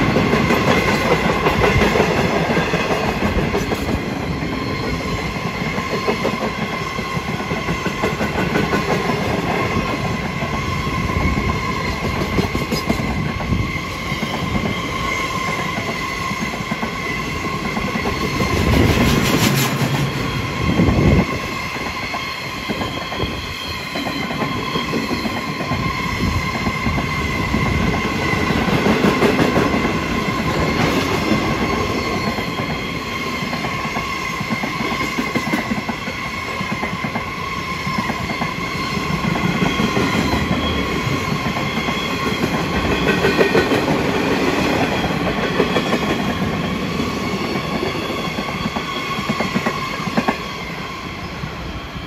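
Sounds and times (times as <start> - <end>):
train wheels clattering on rails: 0.0 - 51.2.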